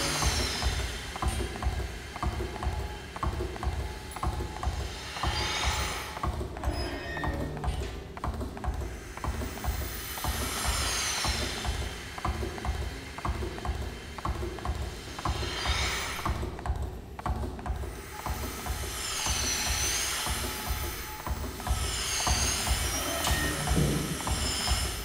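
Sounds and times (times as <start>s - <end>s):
air hissing: 0.0s - 25.0s
milking machine clicking: 0.0s - 25.0s
low pulsing throb: 22.5s - 24.9s.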